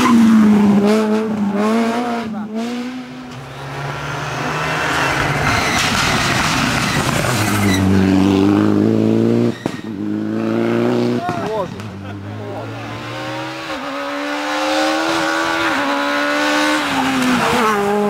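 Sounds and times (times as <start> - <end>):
rally car engine at high revs: 0.0 - 18.0
tyre and grit noise: 2.3 - 10.1.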